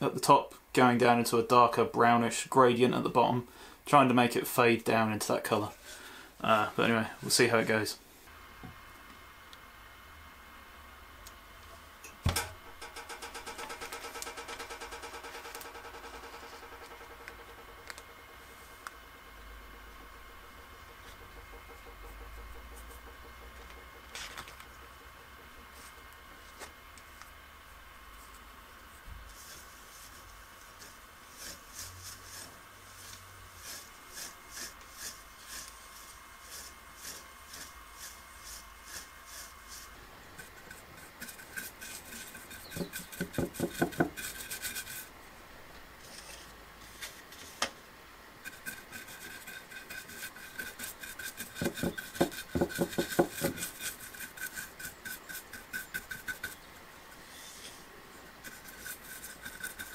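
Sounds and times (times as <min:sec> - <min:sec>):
bristle brush scrubbing: 0:28.1 - 0:45.1, 0:48.4 - 0:59.9.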